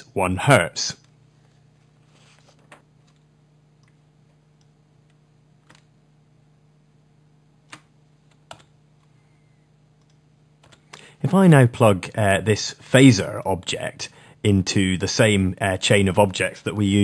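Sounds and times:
low steady hum: 0.0s - 17.0s
computer mouse clicks: 10.0s - 11.0s.

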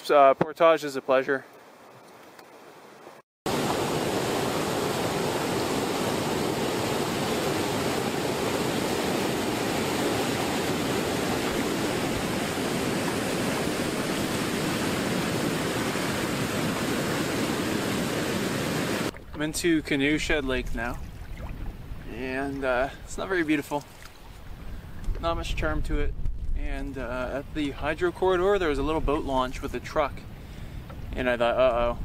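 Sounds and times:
waterfall rushing: 3.5s - 19.1s.

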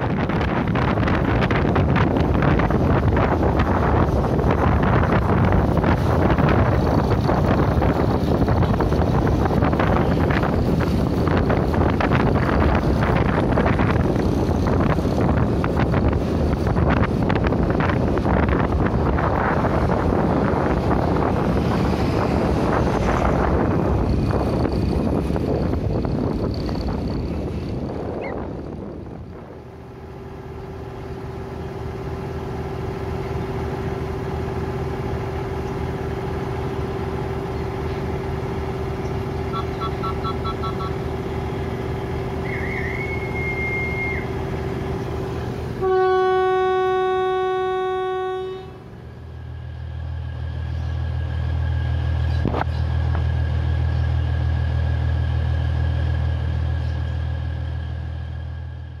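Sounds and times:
diesel railbus engine droning: 0.0s - 59.0s
railbus horn: 39.0s - 41.7s, 42.3s - 45.0s, 45.7s - 49.1s
whistle blast: 42.4s - 44.4s.

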